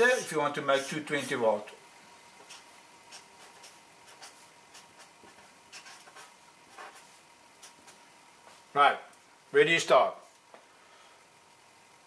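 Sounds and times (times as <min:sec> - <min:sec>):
marker scratching on paper: 0:02.4 - 0:08.0.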